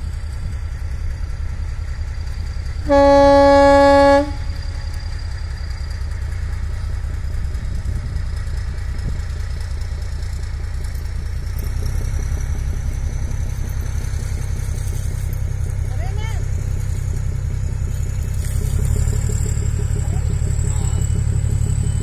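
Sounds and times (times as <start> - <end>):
train engine and wheel rumble: 0.0 - 22.0.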